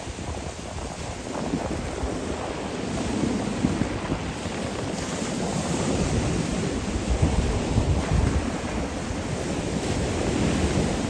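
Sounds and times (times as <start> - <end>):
surf breaking on pebble shore: 0.0 - 11.0
wind rumbling on microphone: 0.0 - 11.0.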